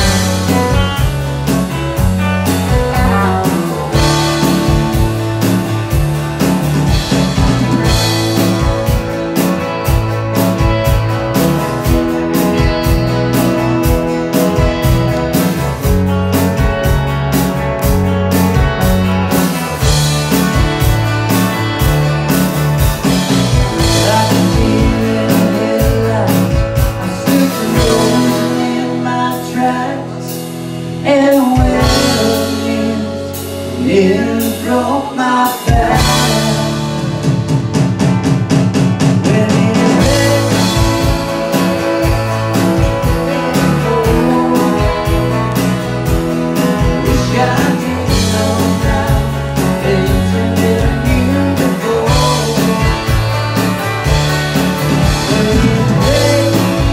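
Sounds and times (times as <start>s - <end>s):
man singing: 0.0s - 1.5s, 2.4s - 5.2s, 23.6s - 37.5s, 39.1s - 53.4s, 55.0s - 56.9s
drum beat: 0.0s - 17.1s, 35.7s - 49.4s
bass notes: 0.0s - 56.9s
electric guitars: 0.0s - 56.9s.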